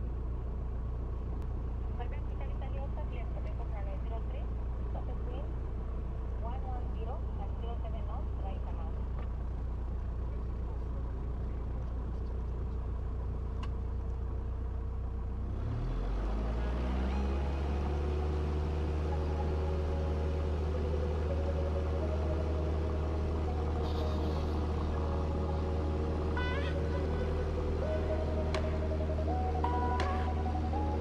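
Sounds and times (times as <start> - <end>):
light aircraft engine and propeller: 15.8 - 31.0.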